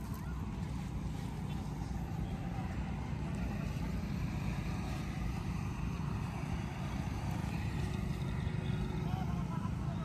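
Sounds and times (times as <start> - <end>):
low rumbling noise: 0.0 - 10.0.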